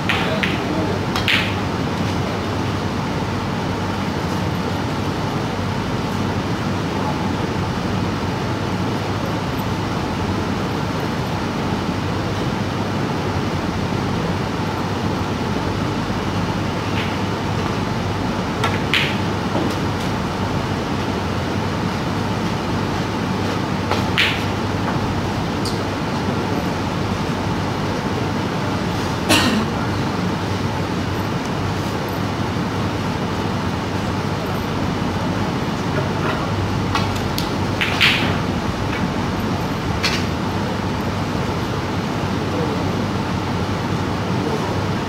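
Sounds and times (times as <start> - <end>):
snooker balls clicking: 0.0 - 1.7, 18.6 - 20.2, 23.5 - 25.9, 35.9 - 40.4
steady room hum: 0.0 - 45.0.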